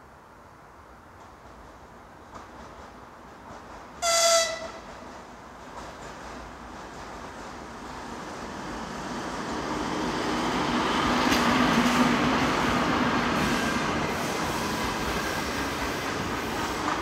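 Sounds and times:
train wheels clicking over rail joints: 1.2s - 8.7s, 11.0s - 17.0s
electric locomotive humming: 6.4s - 17.0s.

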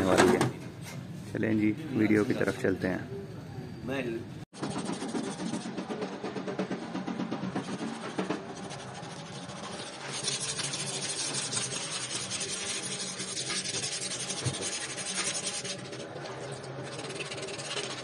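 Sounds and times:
sandpaper rasping on steel tube: 4.6s - 5.7s, 7.6s - 16.0s, 16.8s - 18.0s.

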